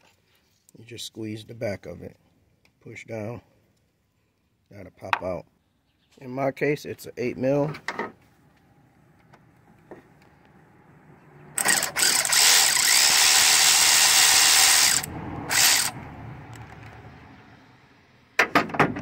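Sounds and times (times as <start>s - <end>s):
cordless ratchet motor running: 11.6s - 16.0s.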